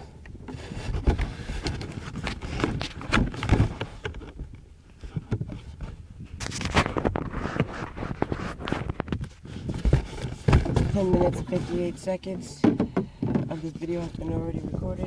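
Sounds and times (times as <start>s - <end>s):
knocks in a small boat: 9.0s - 11.9s, 12.5s - 13.9s.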